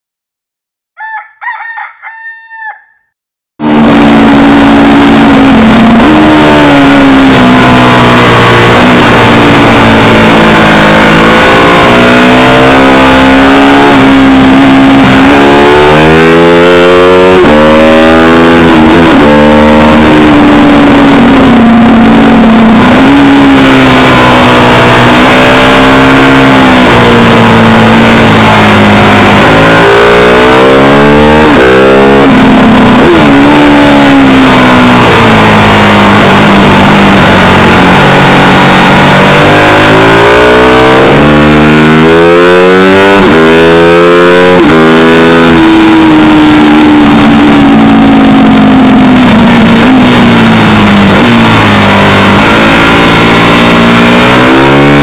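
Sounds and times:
rooster crowing: 1.0 - 3.1
motorcycle engine revving: 3.6 - 55.0.

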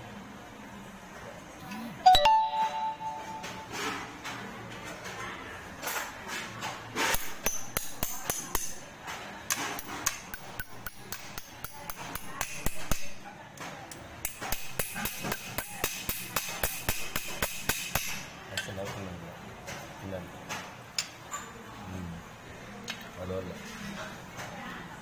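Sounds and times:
metal tool knocking on metal: 9.8 - 13.2.

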